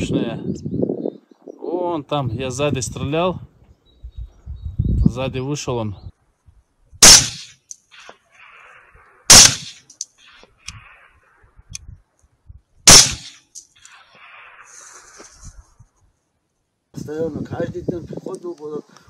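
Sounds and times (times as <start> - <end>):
rifle shots: 7.0 - 7.6, 9.3 - 9.9, 12.9 - 13.4.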